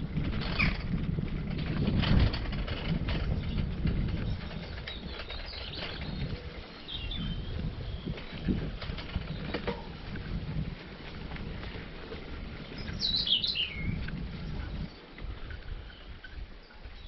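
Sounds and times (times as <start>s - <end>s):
bicycle tyres crunching on gravel: 0.0s - 16.2s
bird chirping: 4.3s - 8.4s, 12.8s - 15.0s.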